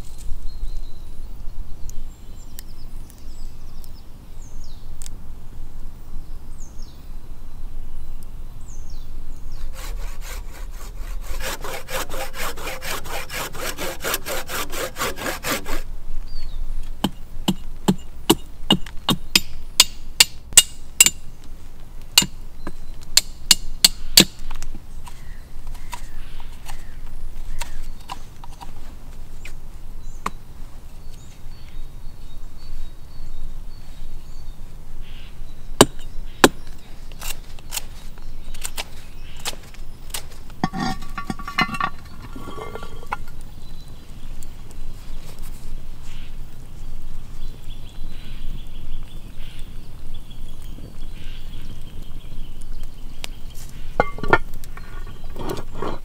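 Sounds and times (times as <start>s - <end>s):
hand saw cutting branch: 9.6s - 15.9s
knife scraping stick: 9.6s - 15.9s, 40.6s - 43.4s, 53.7s - 56.0s.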